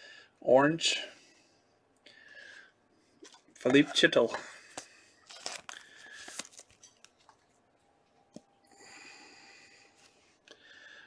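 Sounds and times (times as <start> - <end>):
cards sliding against each other: 4.7 - 6.9.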